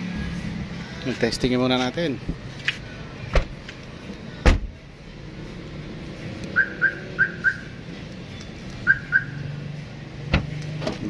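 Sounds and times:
car trunk slammed shut: 4.4s - 4.7s
car alarm chirps: 6.5s - 7.8s, 8.8s - 9.4s.

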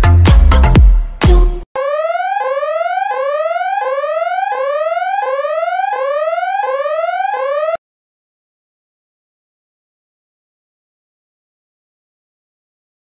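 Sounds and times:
police siren rising sweep: 1.8s - 7.8s.

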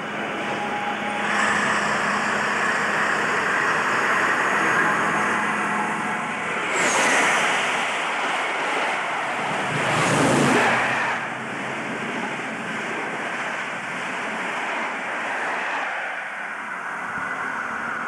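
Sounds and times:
diesel locomotive engine: 0.0s - 18.0s
train wheels rumbling: 0.0s - 18.0s.

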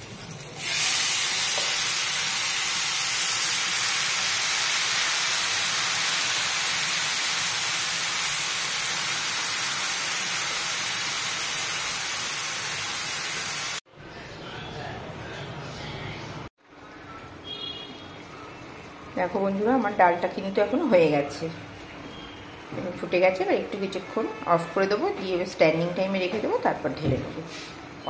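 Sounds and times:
liquid sizzling in hot oil: 0.0s - 13.8s.

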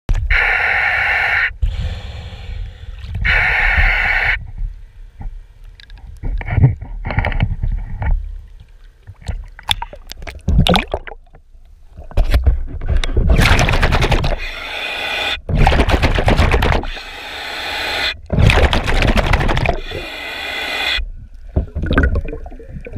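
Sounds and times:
water sloshing and gurgling: 3.0s - 14.8s, 15.4s - 22.9s
water bubbling and splashing: 8.4s - 12.2s, 13.1s - 14.5s, 15.5s - 17.1s, 18.2s - 20.1s, 21.3s - 22.9s.

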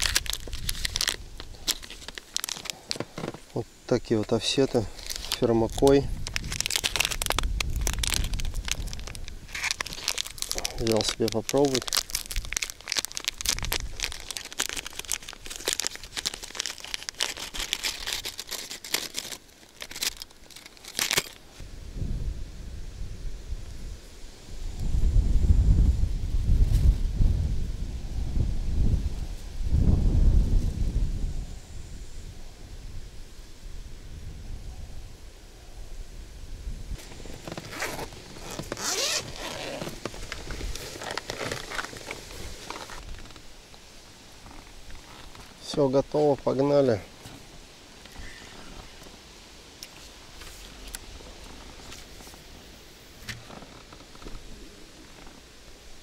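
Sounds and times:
wind rumble on microphone: 0.0s - 2.2s, 4.8s - 16.2s, 21.6s - 43.4s
plastic packaging crinkling: 0.0s - 21.5s, 37.0s - 43.4s
zip pulled: 37.4s - 41.9s.

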